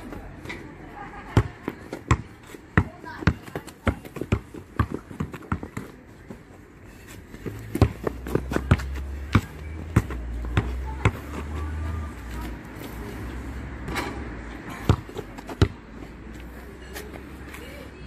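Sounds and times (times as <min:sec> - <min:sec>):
basketball bouncing on pavement: 0:00.1 - 0:06.6, 0:07.3 - 0:13.0, 0:14.7 - 0:16.4.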